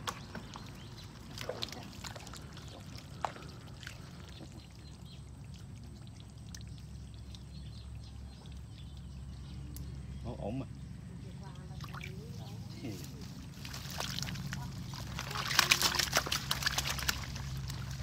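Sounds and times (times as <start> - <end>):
water pouring and splashing: 0.0 - 7.7, 13.6 - 18.0
sharp splashes or clicks: 15.2 - 17.8.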